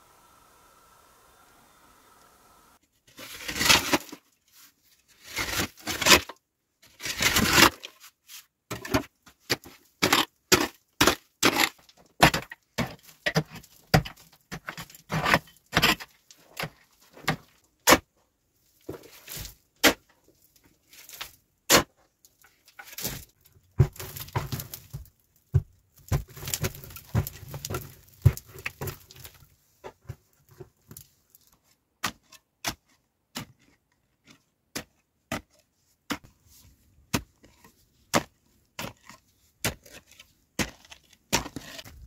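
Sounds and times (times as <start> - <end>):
pick scraping earth: 3.0 - 18.1, 18.7 - 42.0
pick striking packed soil: 22.9 - 42.0.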